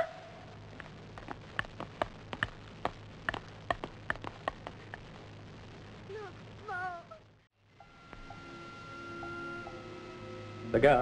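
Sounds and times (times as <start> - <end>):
faint steady hum: 0.0 - 11.0
light sharp taps and clicks: 0.8 - 5.1.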